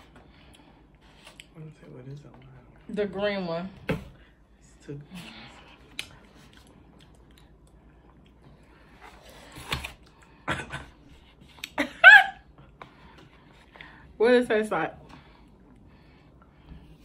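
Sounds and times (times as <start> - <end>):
chewing: 5.8 - 8.6.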